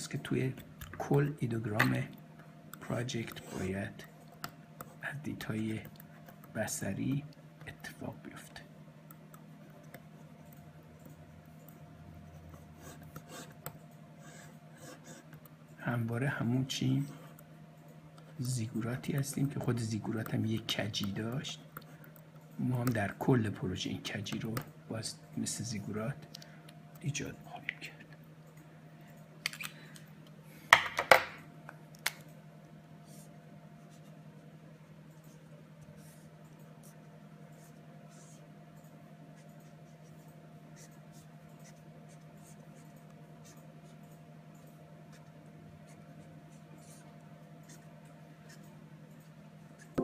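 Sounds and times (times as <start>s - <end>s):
steady low hum: 0.0s - 50.0s
pen scratching on paper: 37.6s - 38.5s, 39.4s - 44.0s.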